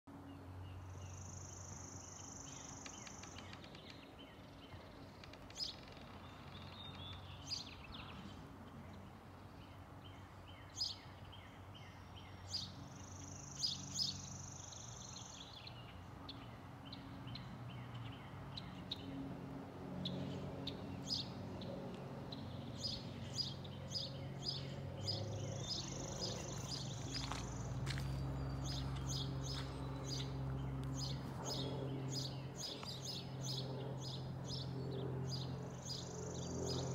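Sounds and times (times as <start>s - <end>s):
distant jet airliner rumble: 15.6s - 36.9s
birds chirping: 20.0s - 36.9s.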